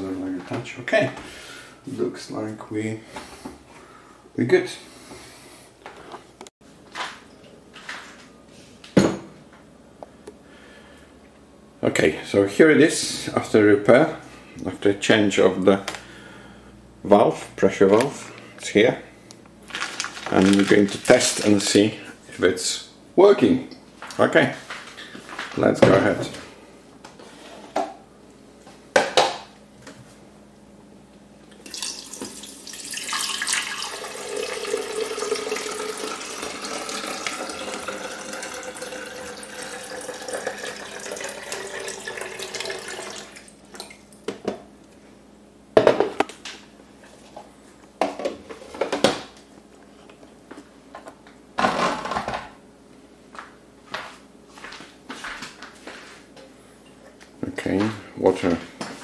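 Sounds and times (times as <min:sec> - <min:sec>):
water pouring into a tank: 0:31.6 - 0:43.5.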